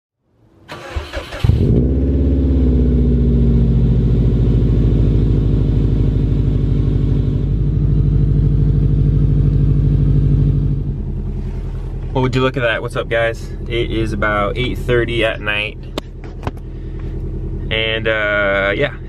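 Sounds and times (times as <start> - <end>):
engine starter cranking: 0.7 - 1.8
car engine idling: 0.7 - 19.0.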